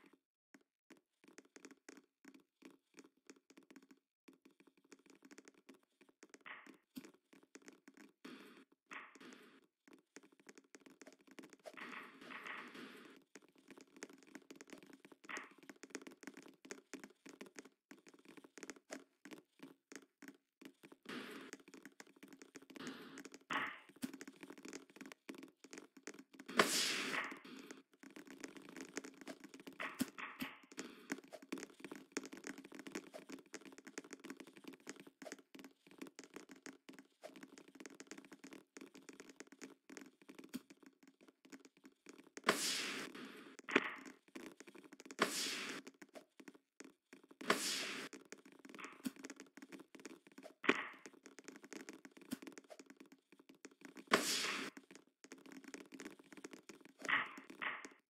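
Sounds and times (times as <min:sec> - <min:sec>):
hissing noise bursts: 0:26.5 - 0:27.3, 0:42.5 - 0:43.4, 0:45.2 - 0:45.8, 0:47.5 - 0:48.1, 0:54.1 - 0:54.7.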